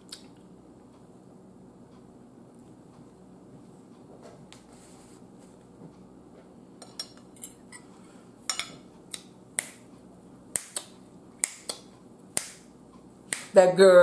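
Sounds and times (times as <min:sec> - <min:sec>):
finger snapping: 0:10.5 - 0:12.7.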